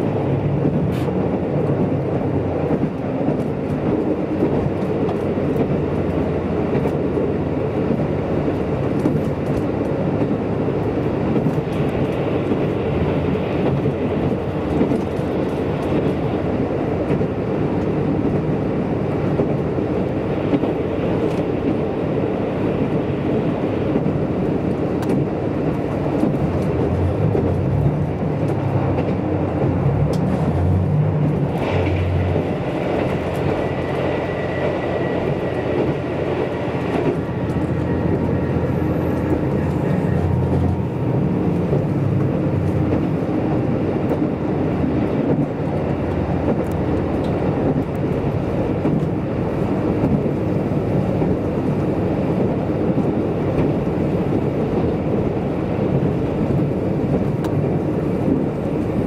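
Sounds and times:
train rumbling on rails: 0:00.0 - 0:59.0.

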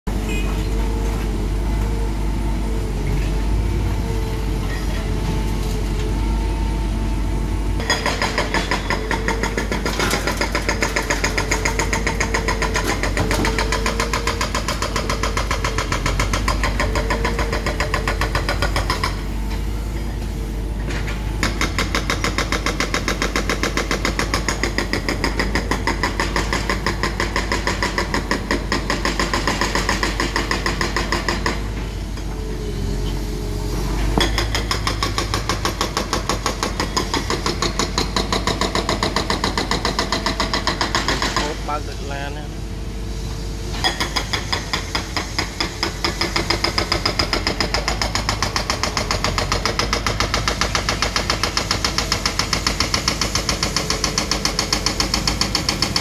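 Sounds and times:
diesel engine running: 0:00.1 - 0:43.8.

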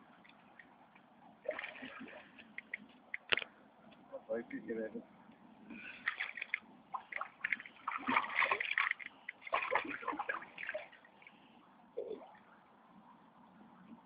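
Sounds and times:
fish splashing in water: 0:05.8 - 0:11.0.

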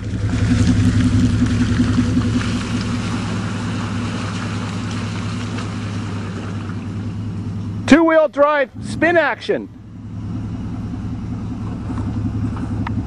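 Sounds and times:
truck engine droning: 0:00.0 - 0:13.0
tyres hissing through mud: 0:00.1 - 0:07.6.

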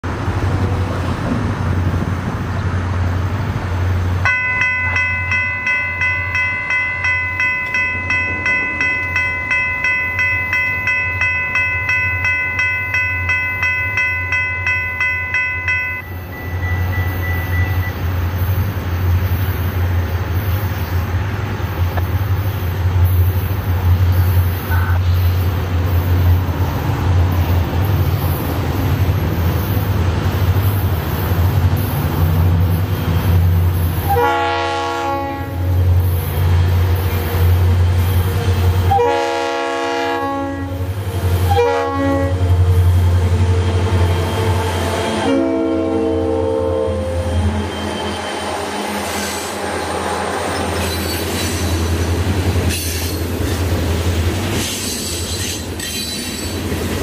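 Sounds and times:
crossing warning bell ringing: 0:04.2 - 0:19.8.

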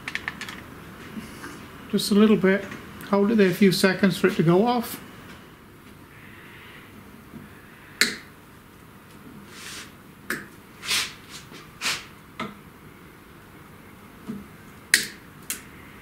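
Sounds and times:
soft hissing puffs: 0:09.4 - 0:10.0, 0:10.8 - 0:12.2.

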